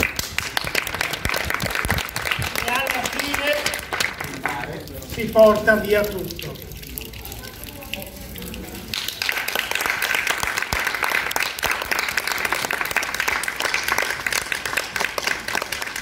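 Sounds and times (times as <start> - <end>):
audience applauding: 0.0 - 4.8, 8.9 - 16.0.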